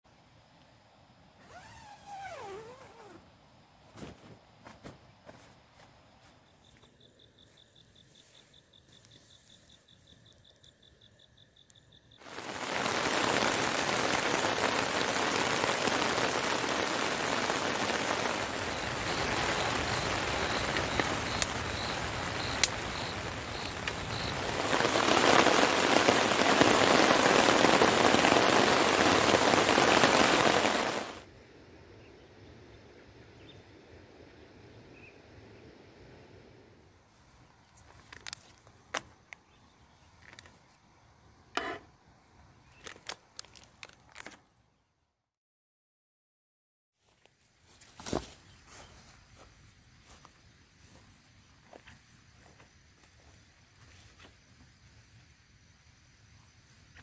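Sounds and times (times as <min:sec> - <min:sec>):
faint insect trill: 0:00.1 - 0:44.0, 0:47.2 - 0:57.0
heavy rain pouring: 0:12.2 - 0:31.2.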